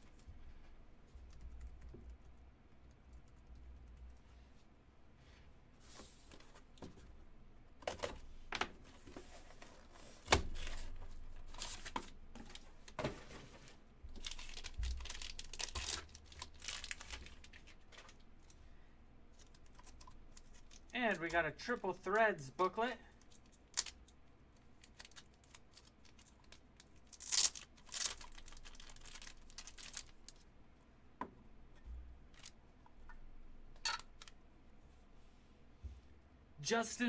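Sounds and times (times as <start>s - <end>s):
cardboard and plastic rustling: 7.8s - 18.5s, 24.8s - 30.4s.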